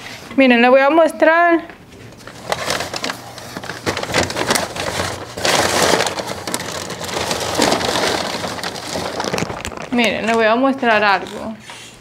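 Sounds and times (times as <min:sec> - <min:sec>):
crinkly bag rustling: 0:02.0 - 0:11.5.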